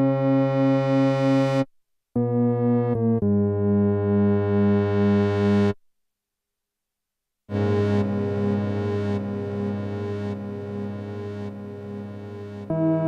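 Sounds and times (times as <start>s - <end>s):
analog synthesizer low notes: 7.5s - 13.0s.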